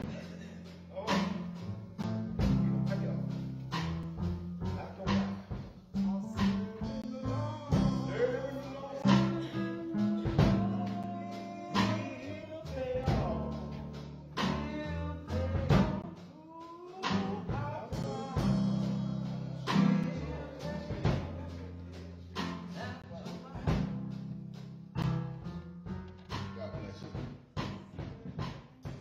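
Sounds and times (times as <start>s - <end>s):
bass: 0.0s - 29.0s
drum kit: 0.0s - 29.0s
person singing: 5.9s - 23.9s.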